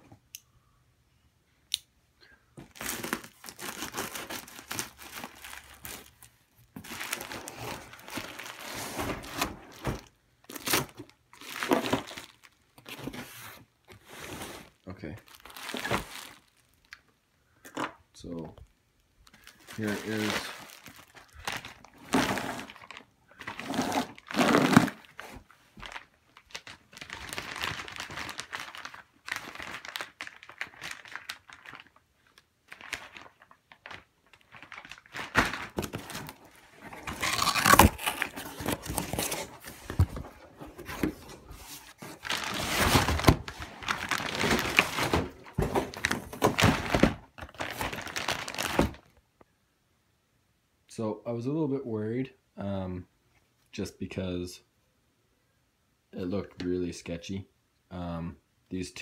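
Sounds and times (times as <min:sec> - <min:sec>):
plastic bag crinkling: 0:02.7 - 0:12.6, 0:15.3 - 0:16.9, 0:19.2 - 0:49.1
cardboard box shifting: 0:22.0 - 0:22.8, 0:35.7 - 0:48.8.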